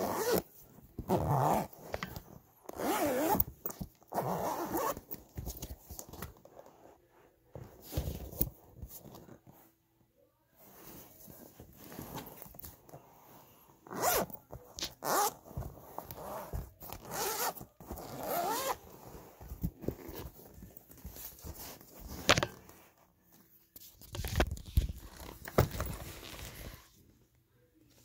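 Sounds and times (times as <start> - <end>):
zipper being pulled: 0.0 - 5.1, 13.8 - 20.3.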